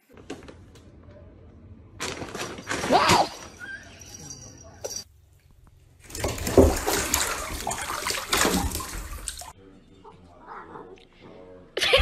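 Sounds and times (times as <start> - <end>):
water splashing in bathtub: 6.0 - 9.6.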